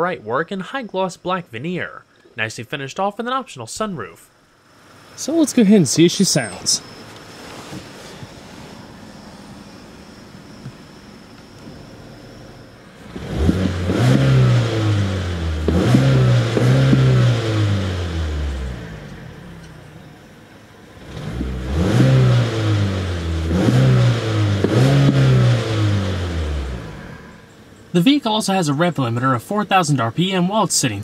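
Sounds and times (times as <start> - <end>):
car engine revving: 4.6 - 28.2.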